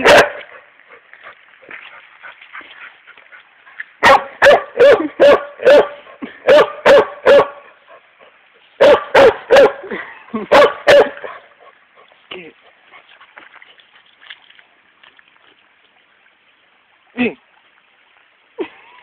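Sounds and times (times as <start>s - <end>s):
dog barking: 0.0s - 0.5s, 4.0s - 7.7s, 8.8s - 9.9s, 10.5s - 11.5s.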